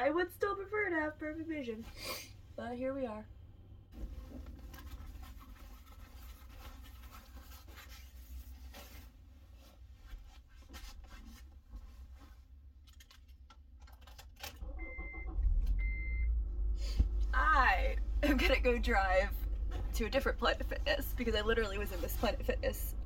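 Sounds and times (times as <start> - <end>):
clothing and bedding rustling: 3.9 - 12.6, 18.2 - 22.9
car warning chime beeps: 14.6 - 16.4
low rumble: 14.7 - 23.0.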